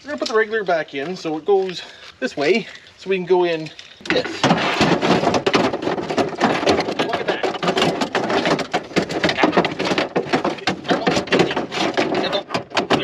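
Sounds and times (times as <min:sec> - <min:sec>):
metal parts knocking and rattling: 0:04.1 - 0:13.0.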